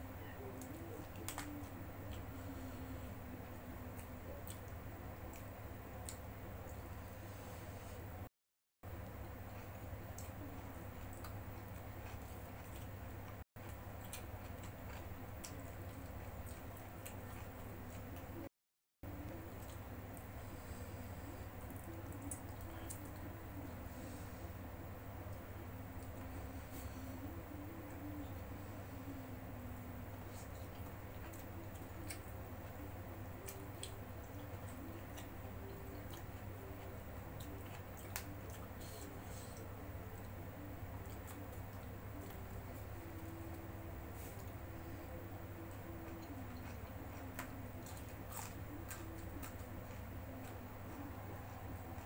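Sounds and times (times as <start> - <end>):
steady low hum: 0.0 - 52.0
soft clicks of food wrapper: 0.6 - 2.2
chewing clicks and smacks: 0.6 - 2.3, 3.9 - 6.9, 9.4 - 18.4, 21.6 - 23.3, 30.2 - 43.6, 45.7 - 52.0.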